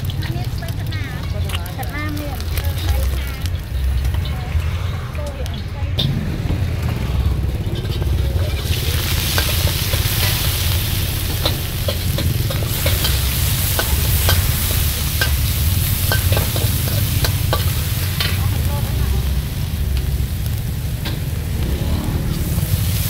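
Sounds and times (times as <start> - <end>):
low rumble: 0.0 - 22.8
oil sizzling in a wok: 0.0 - 23.0
metal utensils scraping a pan: 1.0 - 6.2, 7.4 - 18.9.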